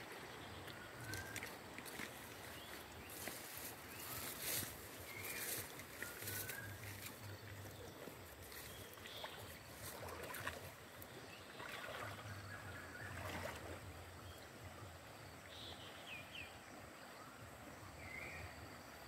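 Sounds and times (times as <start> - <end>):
water splashing and sloshing: 0.0 - 14.7.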